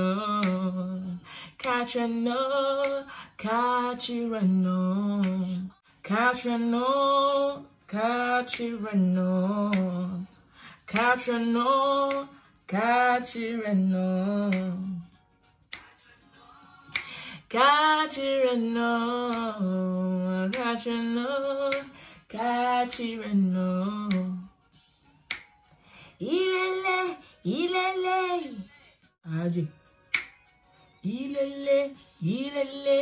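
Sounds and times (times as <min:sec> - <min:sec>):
woman singing unaccompanied: 0:00.0 - 0:24.7, 0:26.2 - 0:33.0.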